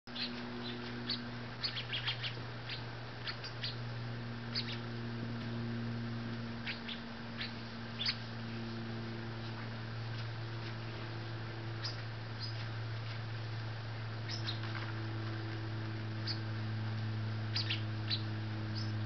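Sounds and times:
steady low hum: 0.0s - 19.0s
sparrows chip calls: 0.1s - 3.9s, 4.5s - 5.0s, 6.5s - 8.5s, 11.7s - 12.8s, 14.2s - 14.9s, 16.1s - 16.6s, 17.5s - 19.0s.

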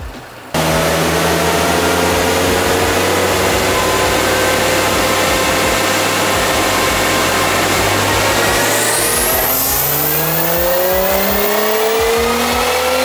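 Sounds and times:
car engine running: 0.6s - 13.0s
steady rushing noise: 0.6s - 13.0s.

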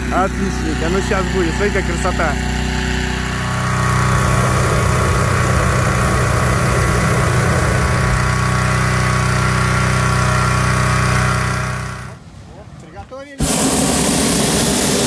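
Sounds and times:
engine drone: 0.0s - 12.2s, 13.4s - 15.0s
fan air rushing: 0.0s - 12.3s, 13.2s - 15.0s.

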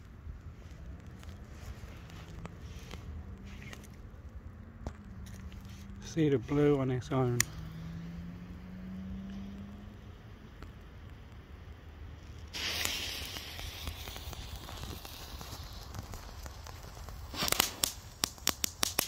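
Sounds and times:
sharp crackling pops: 0.0s - 7.8s, 8.5s - 19.0s
firework fountain hissing: 12.3s - 19.0s.

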